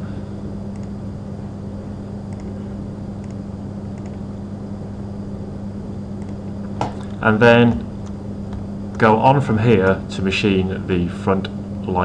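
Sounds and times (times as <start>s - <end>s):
low electrical hum: 0.0s - 12.0s
faint clicks: 0.7s - 1.0s, 4.0s - 4.2s, 6.2s - 6.4s.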